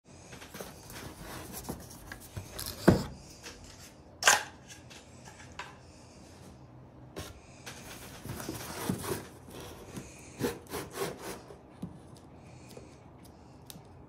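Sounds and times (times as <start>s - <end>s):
cardboard parcel tapping and scraping: 0.3s - 3.4s, 7.2s - 12.1s.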